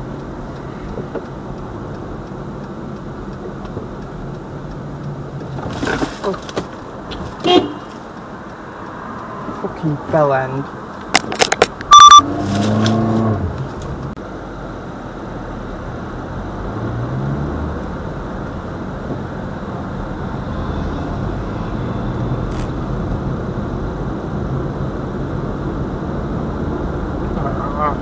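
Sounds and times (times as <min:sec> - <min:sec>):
car engine from inside cabin: 0:11.8 - 0:28.0.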